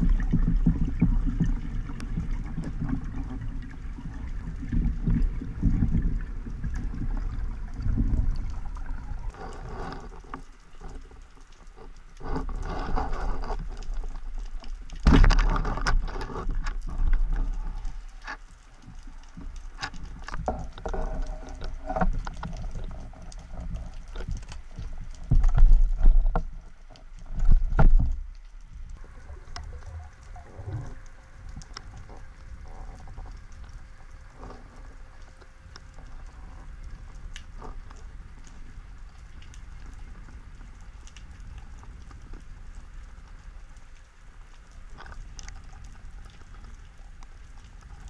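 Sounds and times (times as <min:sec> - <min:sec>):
water rushing underwater: 0:00.0 - 0:48.0
hard crack: 0:15.0 - 0:17.2.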